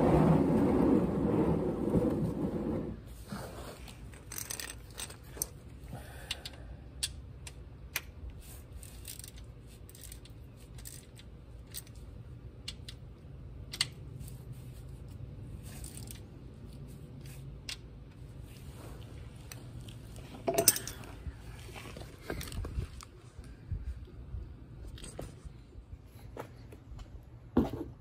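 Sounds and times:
ratchet clicking: 8.8s - 12.0s.

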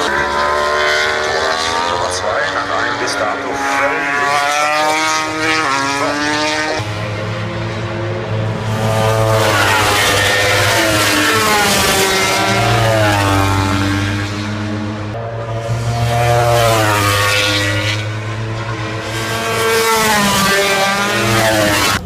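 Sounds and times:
racing motorcycle engines revving: 0.0s - 22.0s.

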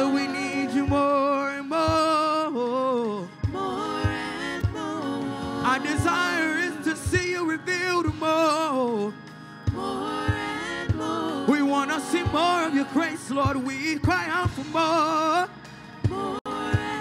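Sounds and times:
man singing lead: 0.0s - 15.5s
women backing singers: 3.4s - 7.1s, 9.7s - 13.7s, 16.0s - 17.0s.

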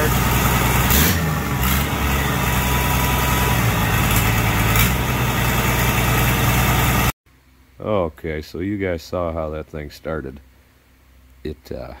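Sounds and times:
tractor engine idling: 0.0s - 7.1s.

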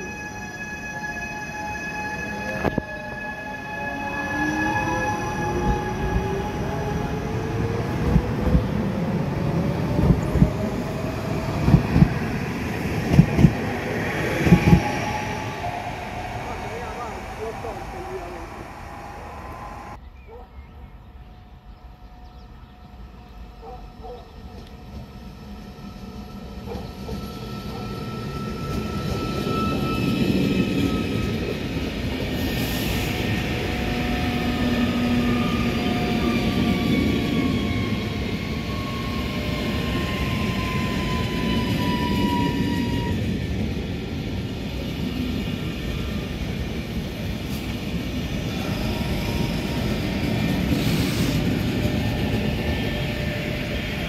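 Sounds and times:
train wheels rumbling: 0.0s - 20.0s, 21.6s - 54.0s.

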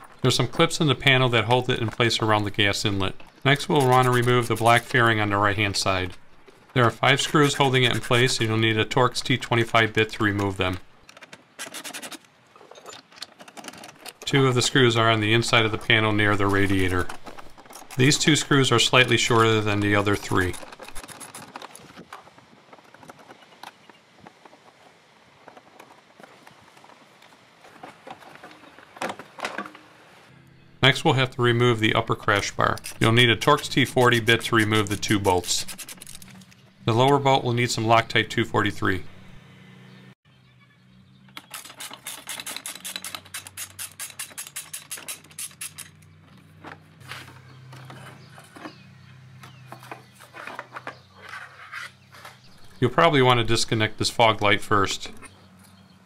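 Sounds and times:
ratchet clicks: 32.7s - 36.6s, 41.3s - 46.1s
small screws being handled: 32.7s - 36.6s, 41.4s - 46.0s.

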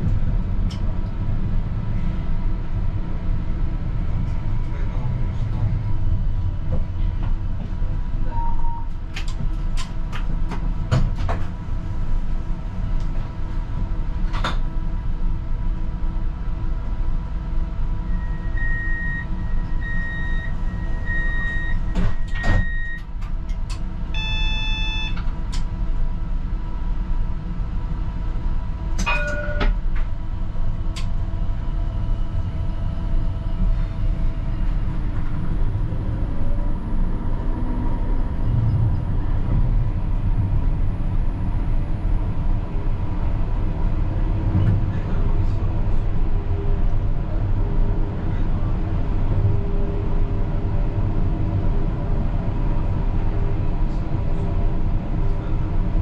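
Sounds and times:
tram cab rumble: 0.0s - 56.0s
short tone: 8.2s - 8.9s, 18.1s - 23.0s, 24.1s - 25.2s
short beeps: 8.3s - 8.9s, 18.1s - 23.0s, 24.2s - 25.2s.

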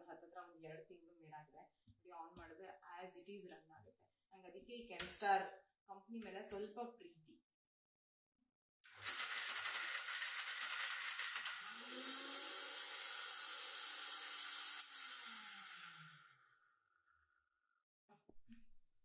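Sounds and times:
mixer grinder motor whine: 8.8s - 16.9s.

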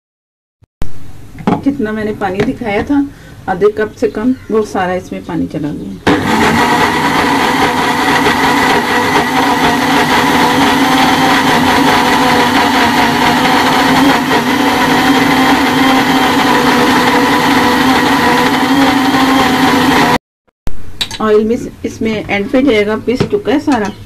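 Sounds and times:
blender motor whine: 6.1s - 20.2s.

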